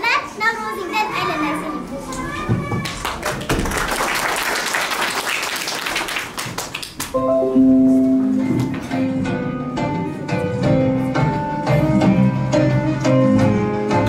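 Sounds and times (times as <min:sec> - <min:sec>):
audience clapping: 0:02.1 - 0:07.2
music with held notes: 0:07.2 - 0:14.0.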